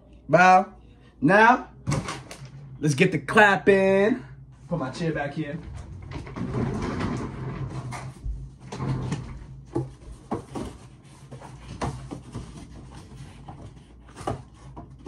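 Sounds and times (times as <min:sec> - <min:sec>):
steady low hum: 0:00.0 - 0:15.0
objects knocking and clunking: 0:05.6 - 0:15.0.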